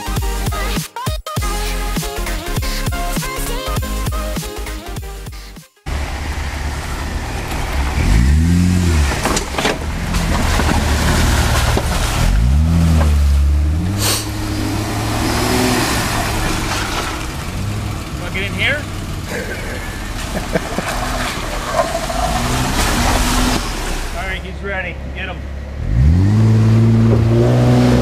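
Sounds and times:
off-road vehicle engine revving: 5.9s - 28.0s.

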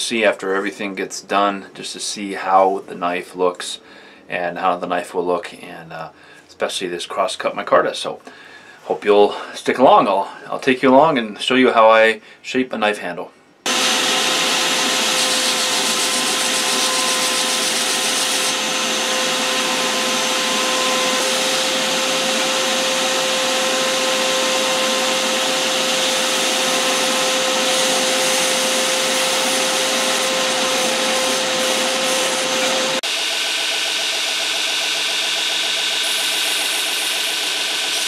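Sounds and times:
belt grinder whining: 13.7s - 38.0s.

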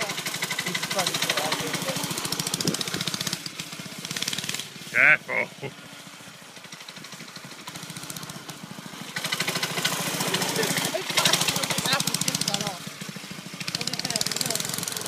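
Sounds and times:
go-kart engine running: 0.0s - 15.0s.

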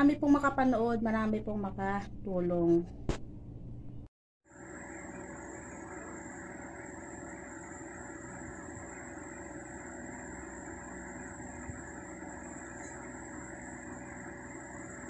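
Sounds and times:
faint high whine: 4.5s - 15.0s.

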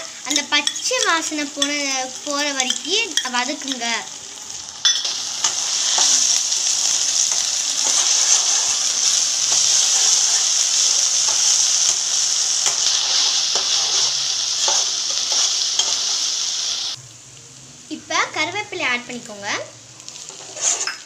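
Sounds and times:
food sizzling in hot oil: 0.0s - 21.0s
spatula scraping pan: 7.2s - 16.2s, 20.3s - 21.0s.

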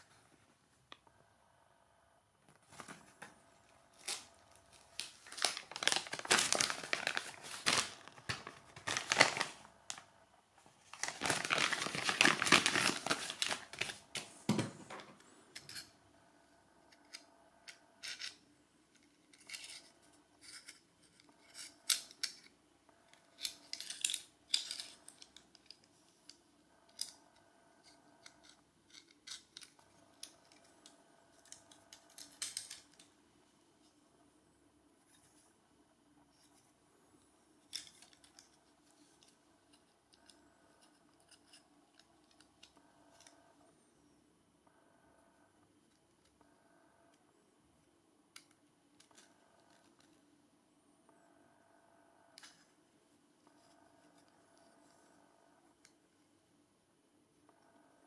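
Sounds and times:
plastic packaging crinkling and tearing: 3.9s - 10.0s, 10.8s - 15.0s.

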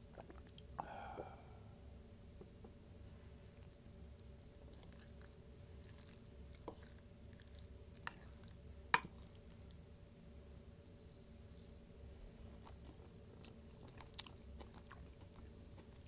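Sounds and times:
glass clinking: 9.0s - 9.2s.

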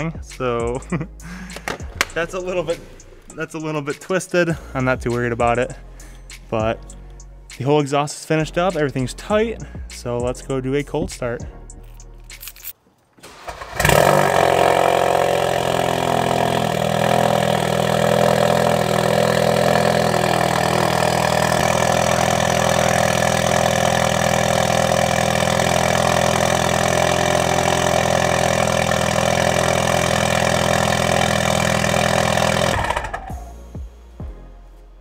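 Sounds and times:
car engine idling loudly: 13.8s - 33.5s.

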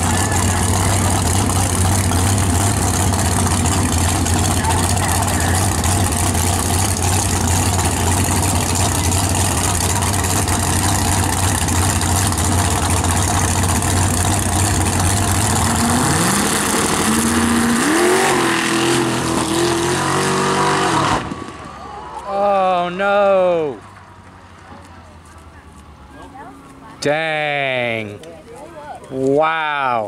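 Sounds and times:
drag car engine accelerating: 0.0s - 22.4s.

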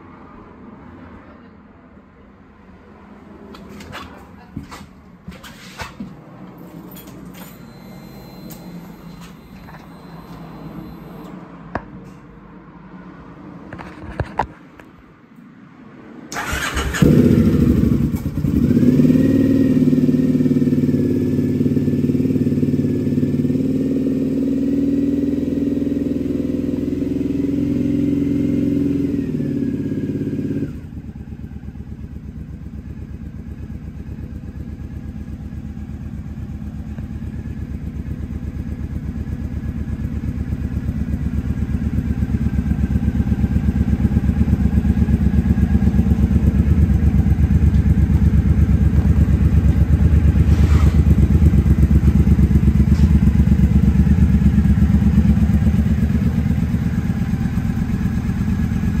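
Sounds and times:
motorcycle engine idling: 16.4s - 26.2s, 29.6s - 59.0s.

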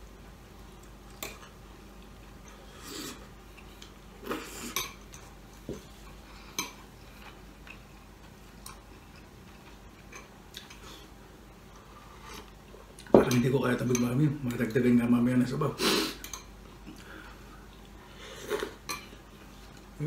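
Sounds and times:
slurping noodles: 2.6s - 3.3s.

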